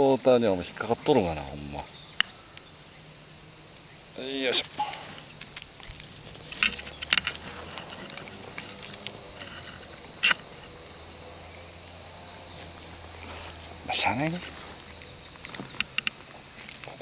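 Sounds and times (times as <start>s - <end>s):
high-pitched insect chorus: 0.0s - 17.0s
sharp clicks: 4.6s - 10.7s, 14.9s - 17.0s.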